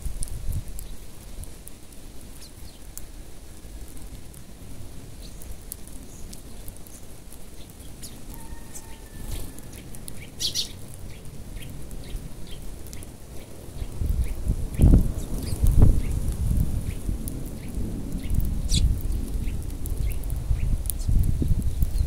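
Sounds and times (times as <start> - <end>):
sparrows chirping: 2.3 - 3.0, 5.1 - 22.0.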